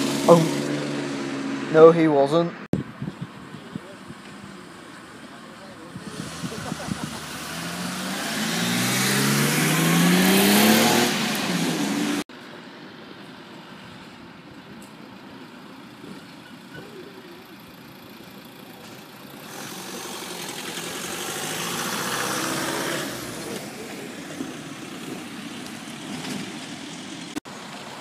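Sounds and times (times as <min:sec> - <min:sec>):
car engines running: 0:00.0 - 0:28.0
car driving past: 0:06.1 - 0:12.2, 0:19.5 - 0:25.4.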